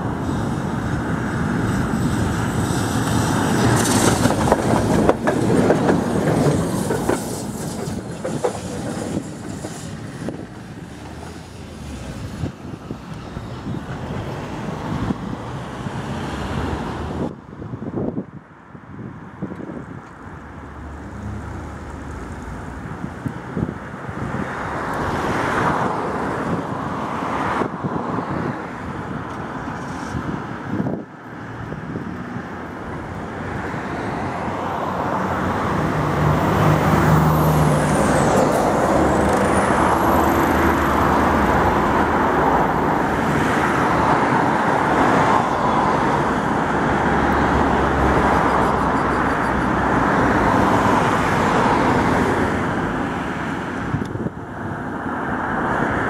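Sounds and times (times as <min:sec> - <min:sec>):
tram rolling along track: 0:00.0 - 0:17.4, 0:18.4 - 0:56.0.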